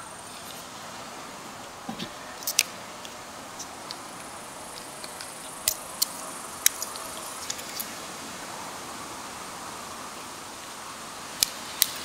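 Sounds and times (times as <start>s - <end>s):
pocket tools clicking and tapping: 2.0s - 4.0s.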